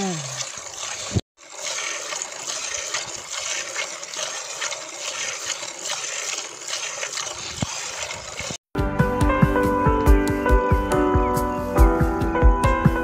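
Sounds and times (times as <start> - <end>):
milk pouring into pot: 0.4 - 8.6.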